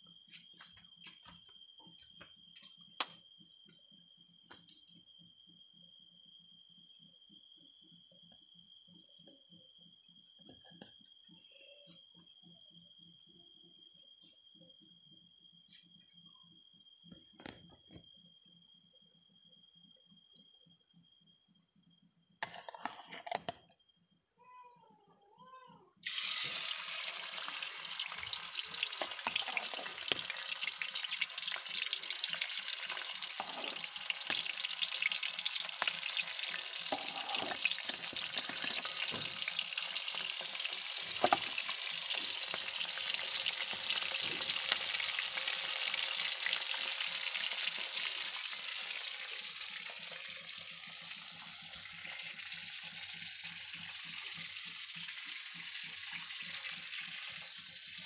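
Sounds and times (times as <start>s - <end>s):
fish sizzling in hot oil: 26.0s - 58.0s.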